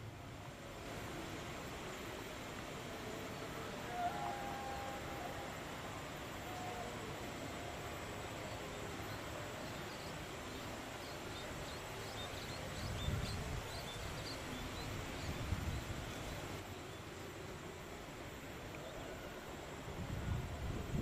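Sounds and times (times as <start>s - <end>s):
outdoor background hiss: 0.0s - 21.0s.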